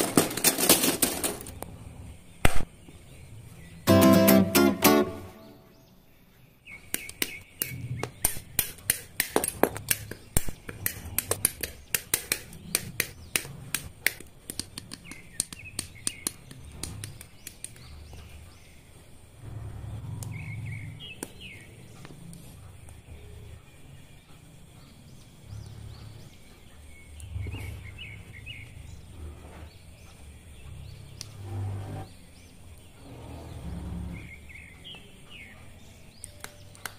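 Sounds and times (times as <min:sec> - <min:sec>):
plastic parts rustling: 0:00.0 - 0:01.6.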